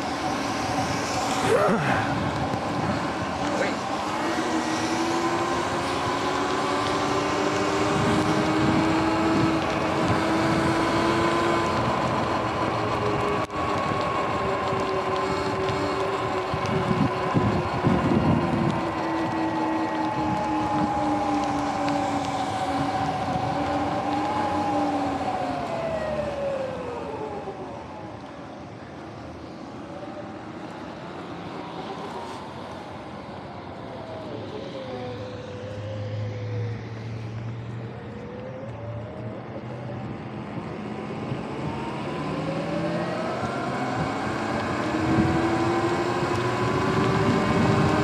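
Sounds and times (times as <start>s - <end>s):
wind: 0.0s - 48.0s
electric dirt bike motor whine: 0.3s - 27.4s, 41.6s - 48.0s.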